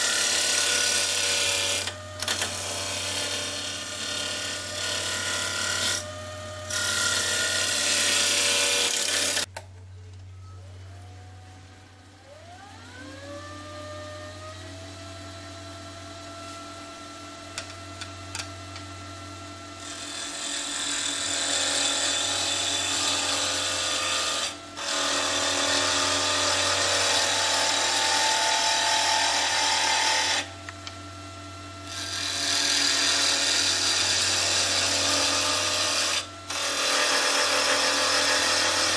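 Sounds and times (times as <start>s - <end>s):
chisel cutting spinning wood: 0.0s - 9.5s, 19.8s - 30.6s, 31.9s - 38.9s
lathe motor whine: 11.1s - 38.9s.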